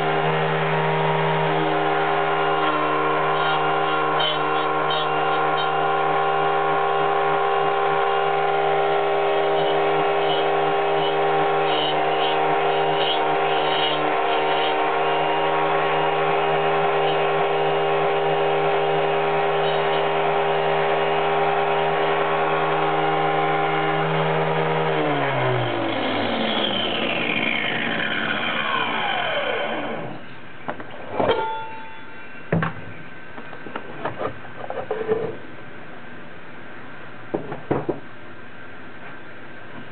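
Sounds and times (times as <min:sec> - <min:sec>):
angle grinder cutting wood: 0:00.0 - 0:30.2.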